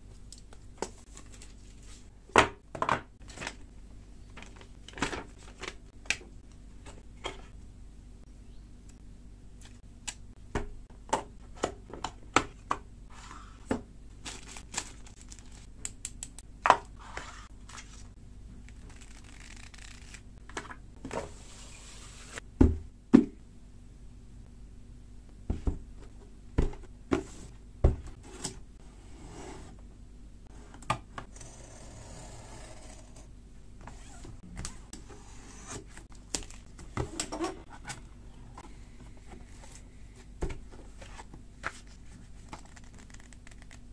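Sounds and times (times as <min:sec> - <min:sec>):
rustling packaging: 0:14.1 - 0:15.8.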